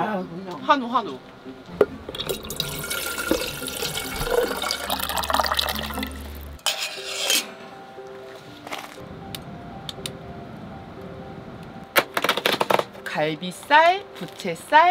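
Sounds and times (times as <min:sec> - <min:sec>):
water pouring into kettle: 0:02.2 - 0:06.5.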